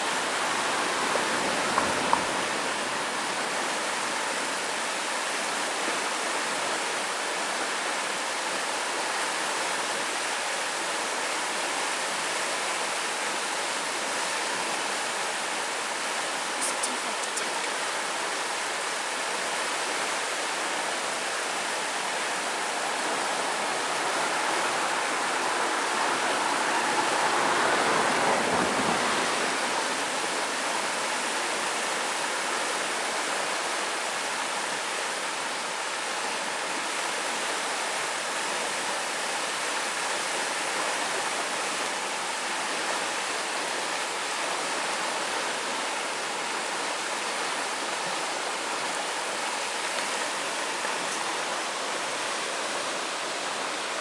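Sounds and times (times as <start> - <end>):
river rushing over rocks: 0.0 - 54.0.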